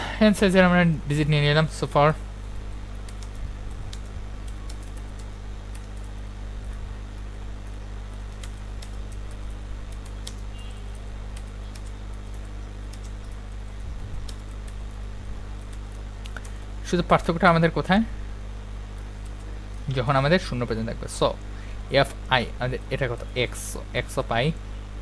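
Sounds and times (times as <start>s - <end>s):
steady low hum: 0.0s - 25.0s
keyboard typing: 3.1s - 6.9s, 7.6s - 14.8s.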